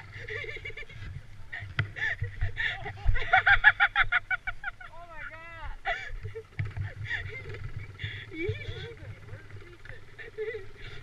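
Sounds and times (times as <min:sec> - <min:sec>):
person laughing hard: 0:00.0 - 0:05.0, 0:05.8 - 0:09.1, 0:09.9 - 0:11.0
low steady rumble: 0:00.0 - 0:11.0.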